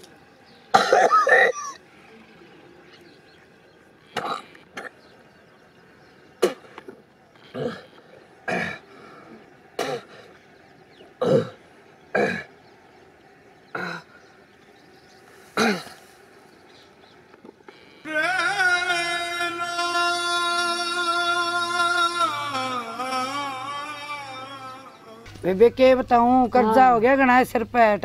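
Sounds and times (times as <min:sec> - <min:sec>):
man coughing: 0:00.7 - 0:01.8, 0:15.6 - 0:16.0.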